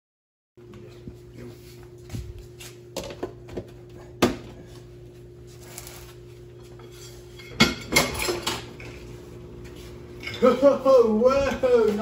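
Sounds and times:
dishes and cutlery clattering: 0:06.7 - 0:09.0, 0:10.2 - 0:10.6.

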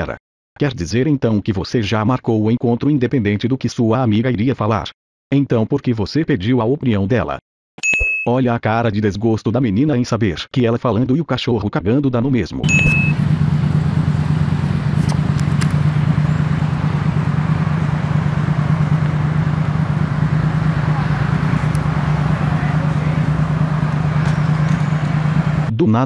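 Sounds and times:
cars passing: 0:12.7 - 0:25.7
constant low hum: 0:12.7 - 0:25.7.

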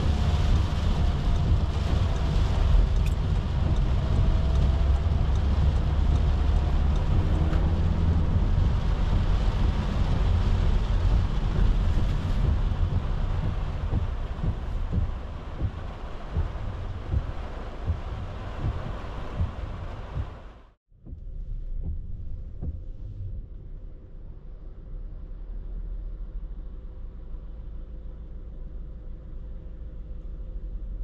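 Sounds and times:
tyres hissing on wet road: 0:00.0 - 0:20.7
van engine and road rumble: 0:00.0 - 0:31.0.

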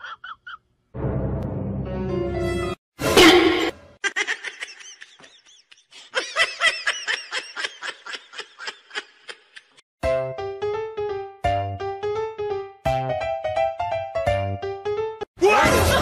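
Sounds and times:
person snickering: 0:04.0 - 0:09.8.

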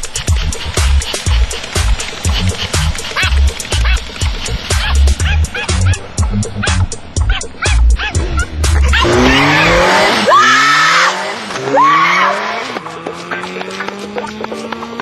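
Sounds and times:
low music beat: 0:00.0 - 0:10.0, 0:12.4 - 0:15.0
motorcycle engine accelerating: 0:00.0 - 0:15.0
dog barking: 0:04.8 - 0:09.3
woman screaming: 0:07.6 - 0:12.6.

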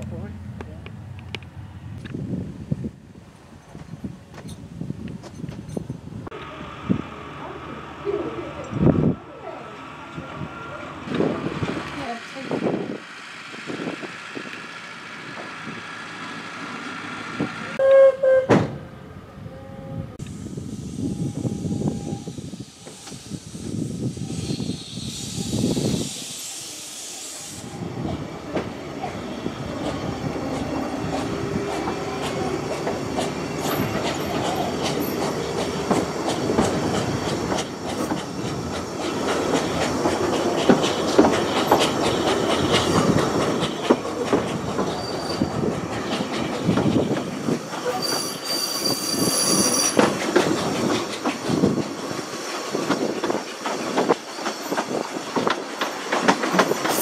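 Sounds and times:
train wheels clattering on rails: 0:28.0 - 0:57.0
high wheel squeal: 0:44.9 - 0:45.7, 0:47.8 - 0:50.1, 0:54.2 - 0:55.0.

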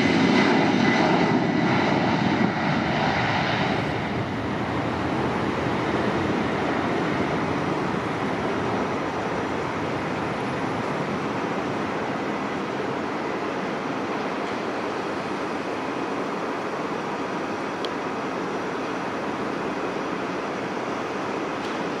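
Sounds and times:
jet engines roaring at takeoff: 0:00.0 - 0:22.0.

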